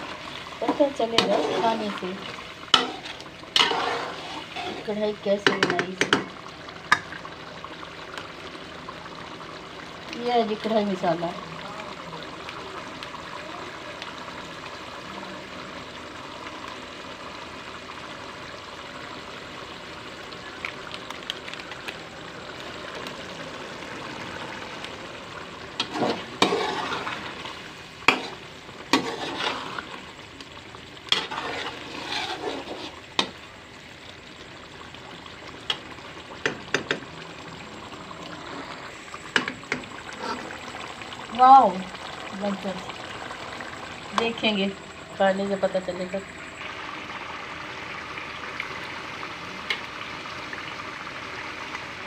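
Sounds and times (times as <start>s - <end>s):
curry sizzling in metal pot: 0.0s - 52.0s
metal ladle scraping pot: 0.6s - 2.0s, 2.6s - 6.3s, 25.8s - 30.0s, 31.1s - 33.3s.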